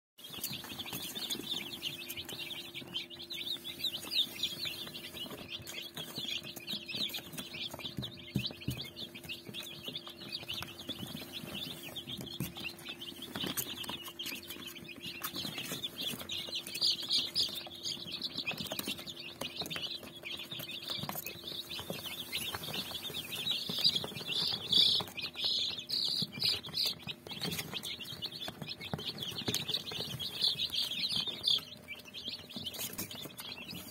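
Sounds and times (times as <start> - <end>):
chicks peeping: 0.2 - 33.9.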